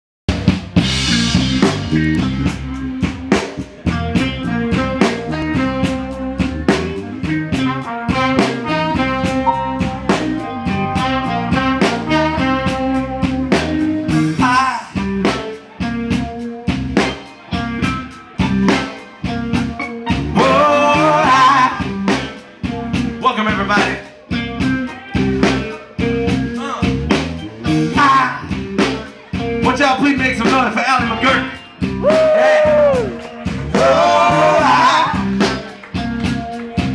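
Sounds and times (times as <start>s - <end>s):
bass: 0.3s - 36.9s
drum kit beat: 0.3s - 36.9s
electric guitar: 0.3s - 36.9s
keyboard: 0.6s - 36.9s
saxophone lead: 1.0s - 15.3s, 17.0s - 23.0s, 31.4s - 36.9s.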